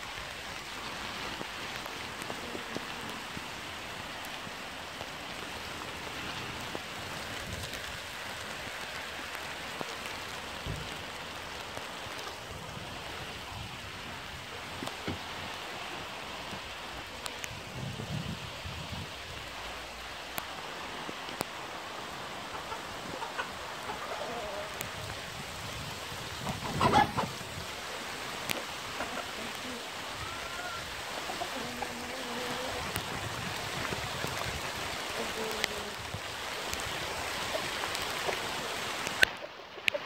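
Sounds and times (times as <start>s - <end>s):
steady rain falling: 0.0s - 40.0s
water drips: 19.4s - 40.0s
chickens calling: 22.4s - 24.8s, 26.3s - 27.5s, 28.7s - 33.0s.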